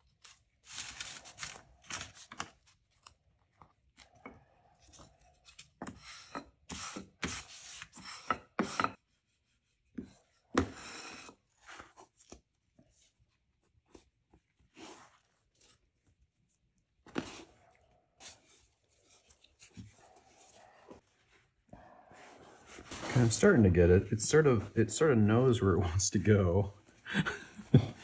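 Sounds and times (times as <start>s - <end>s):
hands rubbing paper and cloth: 0.2s - 2.4s, 22.6s - 27.0s.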